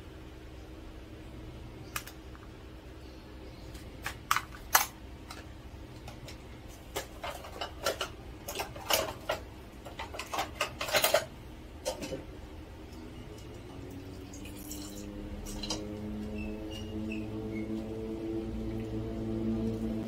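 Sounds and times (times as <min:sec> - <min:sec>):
utensils and dishes clinking: 0:04.3 - 0:12.3, 0:12.9 - 0:17.7.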